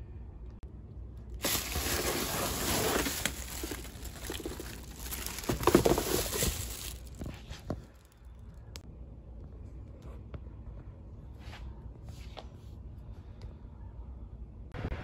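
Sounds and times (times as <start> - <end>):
plastic wrapping crinkling: 1.4 - 7.6.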